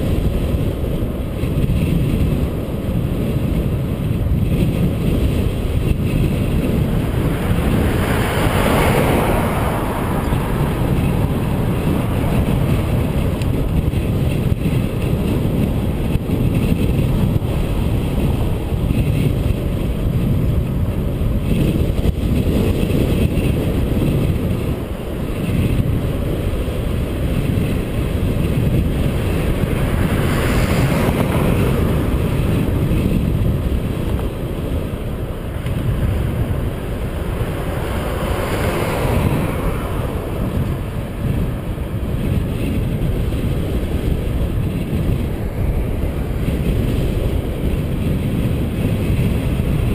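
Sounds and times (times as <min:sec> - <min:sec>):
road noise: 0:00.0 - 0:49.9
wind rumbling on microphone: 0:00.0 - 0:49.9
vehicle passing: 0:05.2 - 0:19.4, 0:27.0 - 0:44.4.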